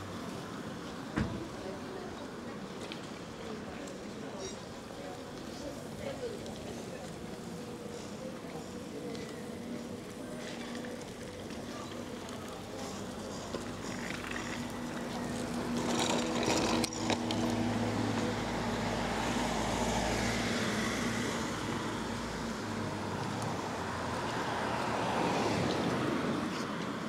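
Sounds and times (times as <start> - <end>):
vehicle engine humming: 9.0 - 27.0.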